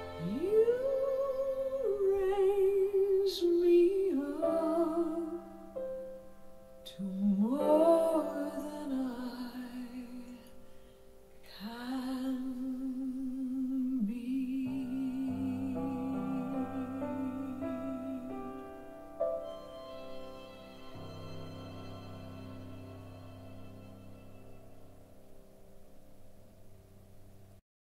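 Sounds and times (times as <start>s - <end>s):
woman singing ballad: 0.0s - 5.6s, 6.8s - 10.6s, 11.5s - 18.6s
piano: 0.0s - 27.6s
soft accompaniment: 0.0s - 27.6s.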